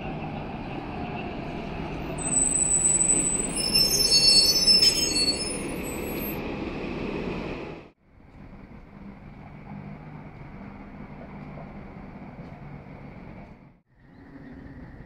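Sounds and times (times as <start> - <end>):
bus engine rumbling: 0.0 - 15.0
brakes squealing: 0.2 - 6.4.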